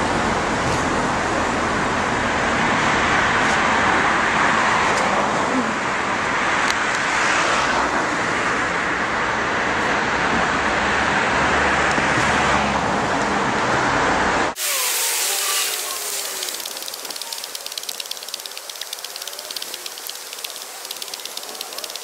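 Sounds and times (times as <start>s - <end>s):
road traffic hiss: 0.0s - 22.0s
fast light ticking: 14.6s - 22.0s.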